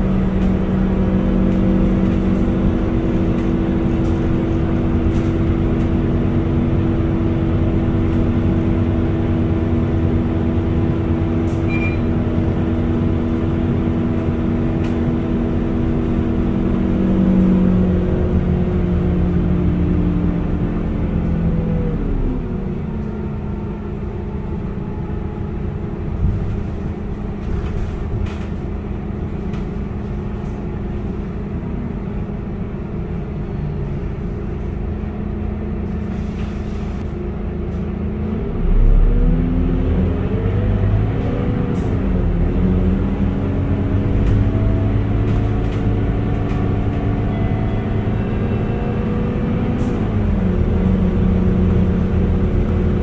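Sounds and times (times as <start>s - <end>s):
bus diesel engine running: 0.0s - 53.0s.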